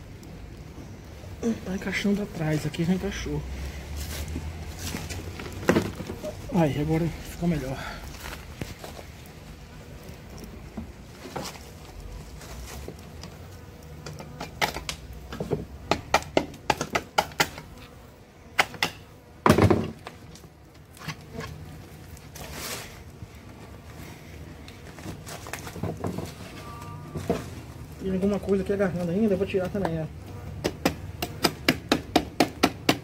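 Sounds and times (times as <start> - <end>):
bees buzzing: 0.0 - 32.9
wooden hive parts knocking: 4.4 - 6.4, 14.0 - 17.6, 25.1 - 26.4, 30.6 - 33.0.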